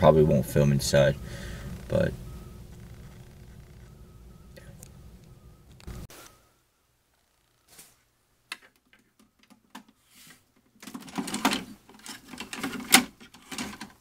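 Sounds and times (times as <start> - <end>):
rustling of handled objects: 7.1 - 14.0.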